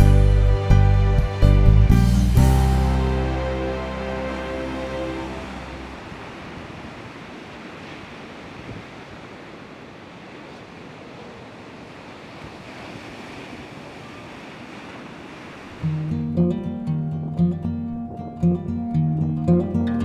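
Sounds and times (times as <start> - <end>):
waves washing on beach: 3.0 - 16.2.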